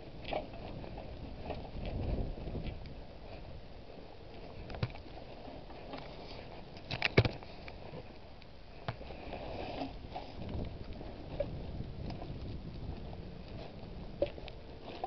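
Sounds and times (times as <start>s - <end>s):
handheld camera knocks and rustling: 6.8s - 8.0s.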